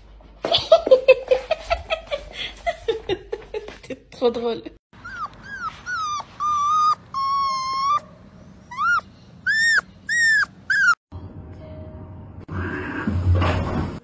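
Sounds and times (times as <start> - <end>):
puppy howling: 5.0 - 11.0.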